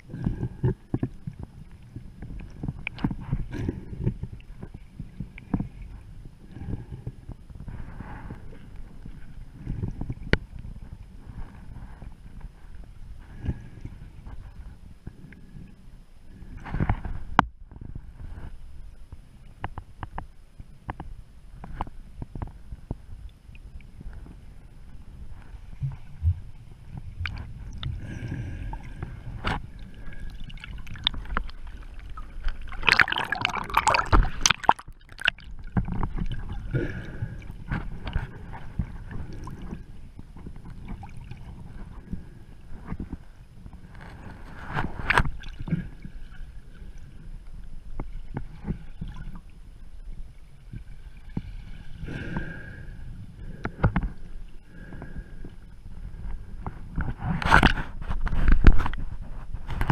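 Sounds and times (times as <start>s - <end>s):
water sloshing and gurgling underwater: 0.0s - 59.9s
rush of water: 26.9s - 39.8s.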